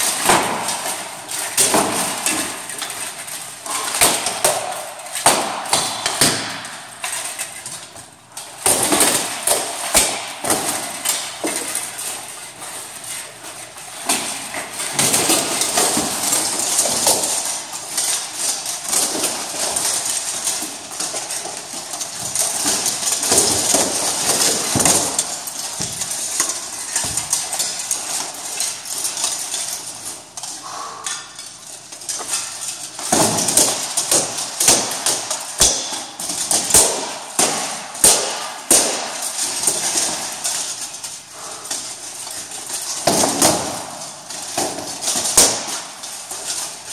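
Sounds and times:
plate armour clanking: 0.0s - 46.9s
practice sword blows knocking: 30.6s - 40.4s.

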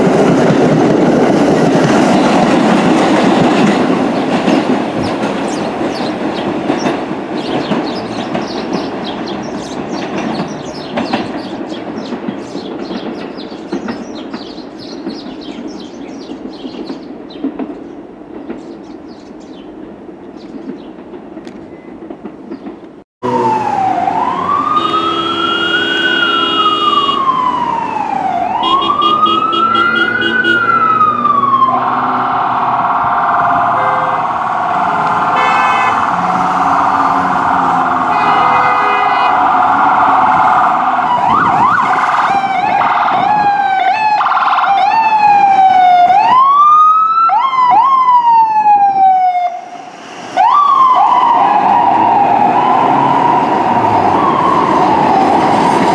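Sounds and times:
emergency siren wailing: 23.2s - 55.9s
vehicle horn blasts: 24.7s - 27.3s, 28.6s - 30.7s, 33.7s - 34.2s, 35.4s - 37.4s, 38.1s - 39.4s.

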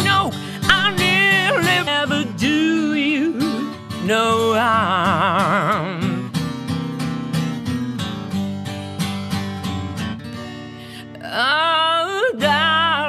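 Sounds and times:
woman singing with vibrato: 0.0s - 6.4s, 11.0s - 13.0s
acoustic guitar strumming: 0.0s - 13.0s.

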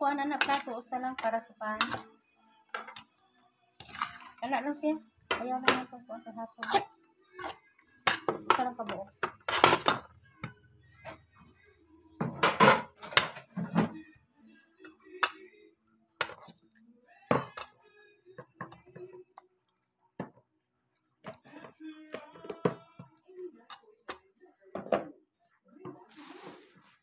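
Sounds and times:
fork scraping metal pot: 3.8s - 4.4s, 6.6s - 8.6s, 9.2s - 10.1s.

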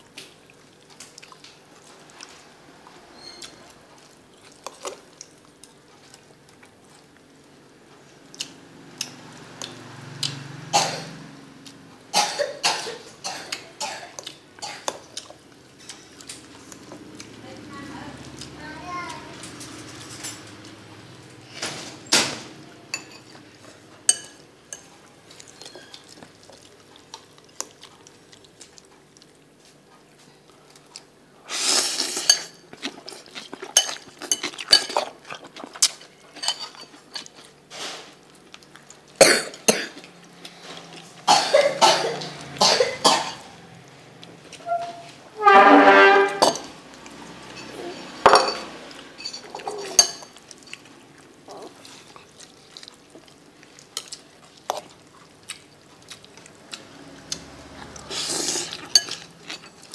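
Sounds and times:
person coughing: 12.2s - 14.9s, 39.2s - 40.0s, 41.3s - 43.5s
cutlery clinking on ceramic bowl: 45.4s - 46.8s, 47.5s - 50.8s, 58.6s - 59.9s.

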